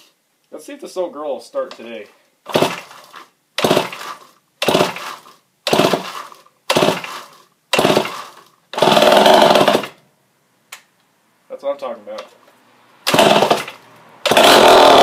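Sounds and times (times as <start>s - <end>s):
chainsaw engine turning over: 2.5s - 10.0s, 13.0s - 15.0s
chainsaw engine running loudly: 7.8s - 8.1s, 8.8s - 9.9s, 13.1s - 15.0s.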